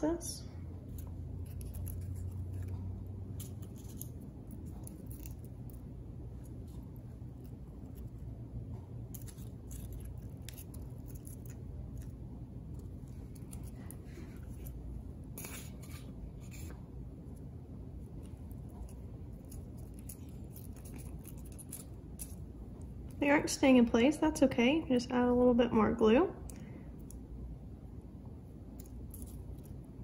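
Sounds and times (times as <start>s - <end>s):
popcorn crackling: 0.0s - 16.8s, 18.0s - 23.8s, 28.6s - 30.0s
steady low hum: 0.0s - 30.0s
paper rustling: 13.2s - 16.8s.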